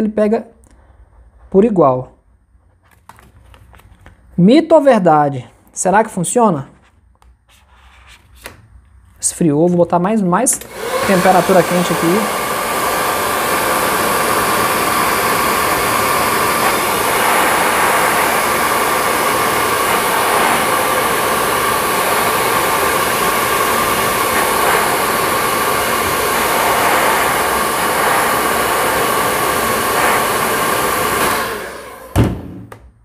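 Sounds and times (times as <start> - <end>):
hair dryer running: 10.6 - 32.5.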